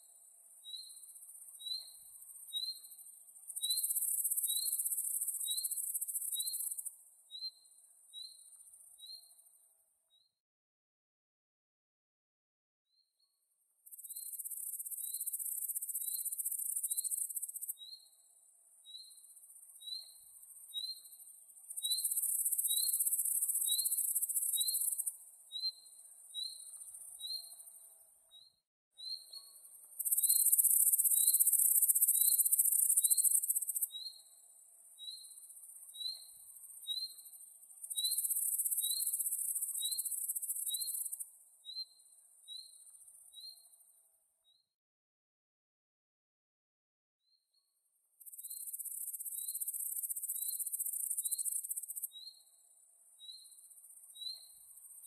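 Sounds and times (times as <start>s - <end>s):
cricket chirping: 0.0s - 9.6s, 13.9s - 44.6s, 48.2s - 55.0s
high-pitched insect buzz: 48.3s - 52.1s.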